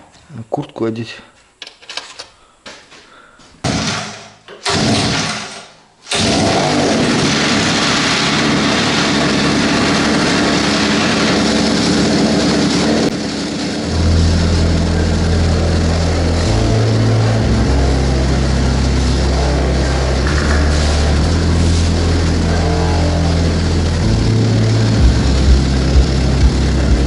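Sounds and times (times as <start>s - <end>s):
moped engine running: 6.1s - 27.0s.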